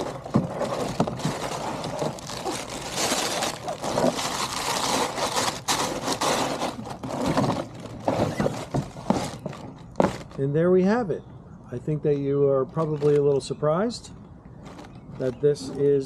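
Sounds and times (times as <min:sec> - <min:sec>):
board scraping against cardboard: 0:04.9 - 0:10.3.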